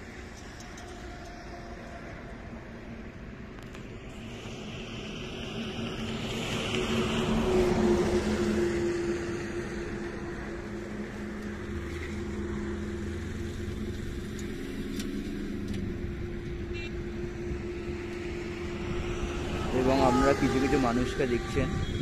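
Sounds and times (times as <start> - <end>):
engine humming: 0.0 - 22.0
rush of noise: 17.1 - 22.0.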